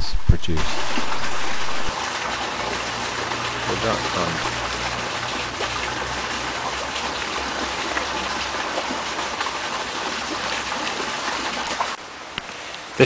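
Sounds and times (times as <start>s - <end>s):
water running: 0.6s - 12.0s.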